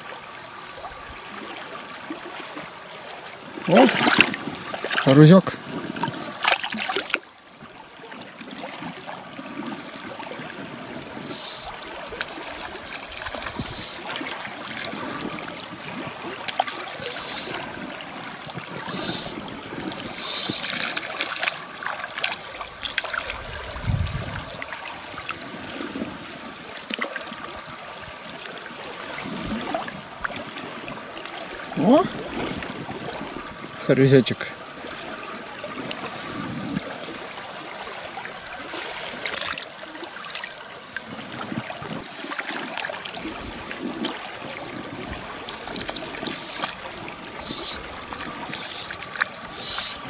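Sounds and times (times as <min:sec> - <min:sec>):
river rushing over stones: 0:00.0 - 0:07.3, 0:07.9 - 0:33.9, 0:34.6 - 0:50.0
fly line swishing: 0:11.2 - 0:14.2, 0:16.7 - 0:17.7, 0:18.8 - 0:21.5, 0:45.7 - 0:50.0.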